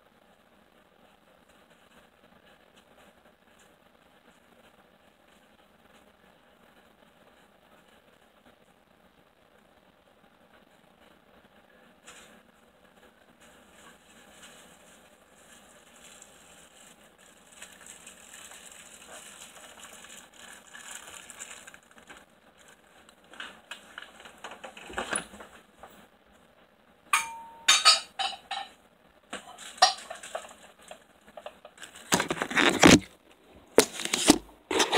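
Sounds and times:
faint room noise: 0.0 - 34.9
rustling handling noise: 12.0 - 26.1, 27.7 - 34.9.

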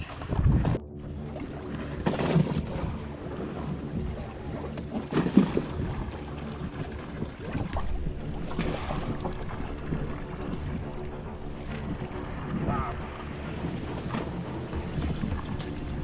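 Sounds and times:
wind on microphone: 0.0 - 0.8, 5.2 - 16.0
boat motor humming: 0.0 - 16.0
sea washing against hull: 0.0 - 16.0.

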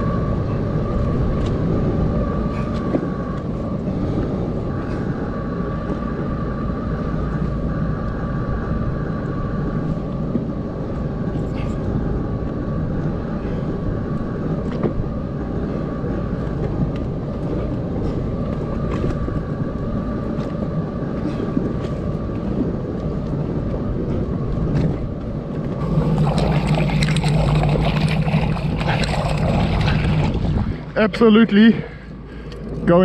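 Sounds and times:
water splashing: 25.7 - 31.1.

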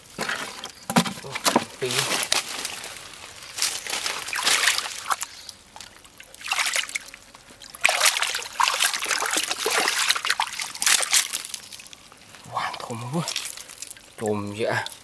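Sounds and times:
hands splashing in muddy water: 3.8 - 5.4, 6.4 - 7.1, 7.8 - 11.9.

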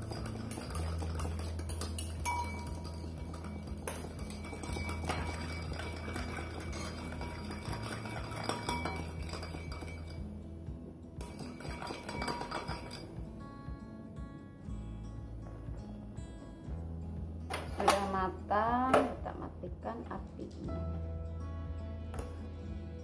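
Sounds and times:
spoon clinking in a bowl: 0.0 - 10.3, 11.2 - 13.2.

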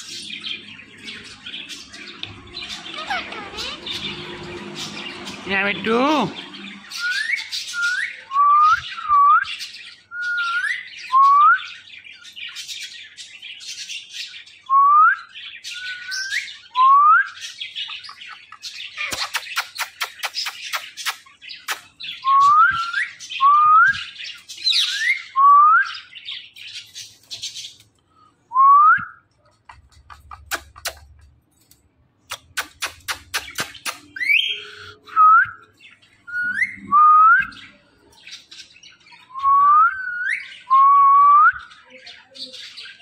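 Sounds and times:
parakeet chatter: 0.0 - 8.3, 17.4 - 22.2, 29.4 - 35.1
parakeet whistling: 2.4 - 9.4, 33.2 - 37.8
quick sharp clicks: 32.2 - 34.2.

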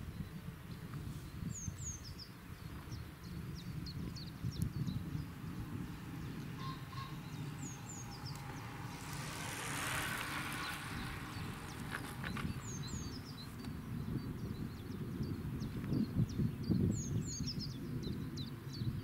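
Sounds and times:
small birds chirping: 0.0 - 19.0
wind rumbling on microphone: 0.0 - 19.0
soft rushing swell: 4.2 - 13.6.

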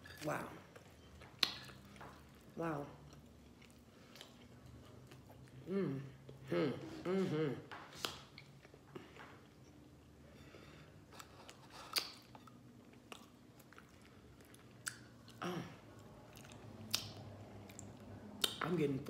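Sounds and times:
person chewing food: 0.6 - 6.4, 7.9 - 18.6
wet mouth clicks and smacks: 16.5 - 18.6.

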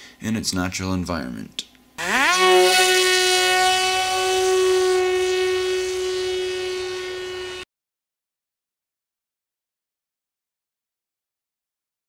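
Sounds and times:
electric motor propeller whine: 2.0 - 7.7.

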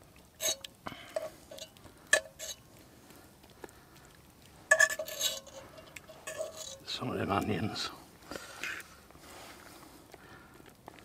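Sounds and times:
metal fork scraping cast iron pot: 0.4 - 2.7, 4.7 - 7.0.

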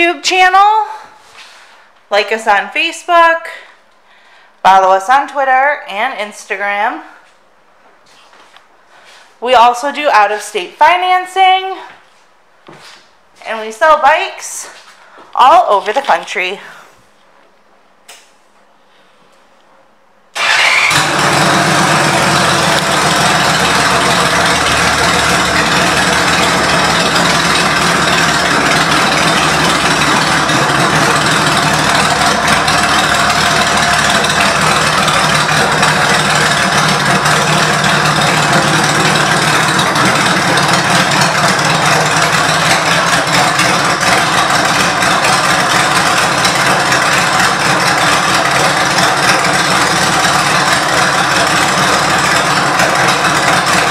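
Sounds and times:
motorcycle engine idling: 20.4 - 53.9.

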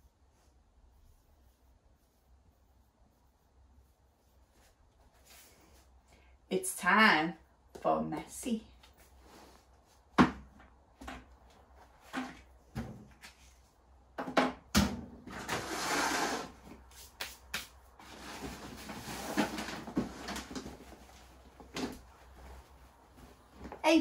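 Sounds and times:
rummaging in plastic box: 18.0 - 22.1.

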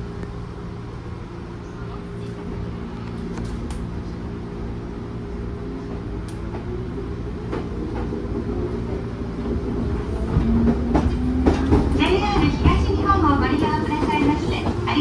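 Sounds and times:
clicks and knocks in train car: 10.2 - 13.2.

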